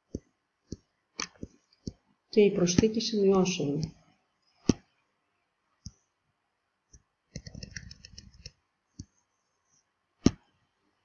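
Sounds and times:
faint keyboard typing: 0:00.0 - 0:03.0, 0:06.9 - 0:09.2
mouse clicks: 0:06.9 - 0:09.1.

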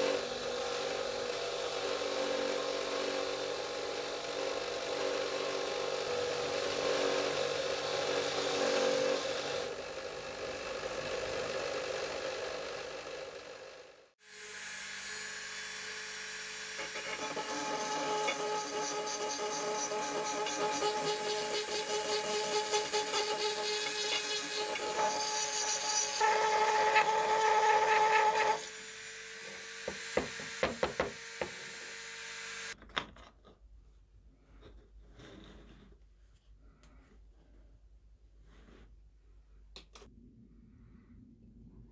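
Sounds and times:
grinder motor hum: 0:00.0 - 0:32.8
rotary tool whining: 0:14.3 - 0:32.8.

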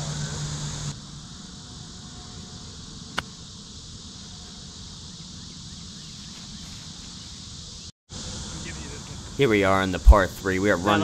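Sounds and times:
outdoor hiss: 0:00.0 - 0:11.0
golf club striking ball: 0:03.1 - 0:03.4.

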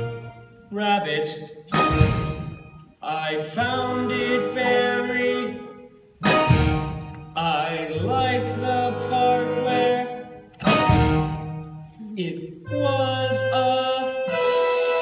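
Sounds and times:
instrumental accompaniment: 0:01.7 - 0:03.0, 0:03.6 - 0:15.0
person singing: 0:12.0 - 0:15.0.

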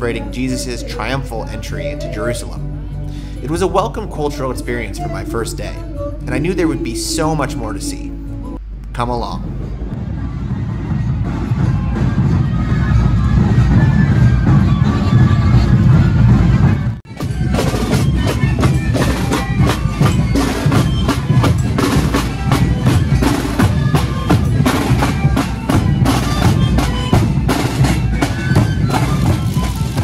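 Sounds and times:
bass drum beating: 0:08.6 - 0:30.0
snare drums: 0:10.8 - 0:30.0.

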